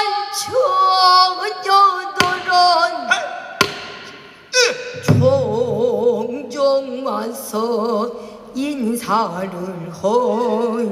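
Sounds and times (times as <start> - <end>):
woman singing into a microphone: 0.0 - 3.2, 4.6 - 10.9
sharp knocks: 2.2 - 2.6, 3.6 - 4.4.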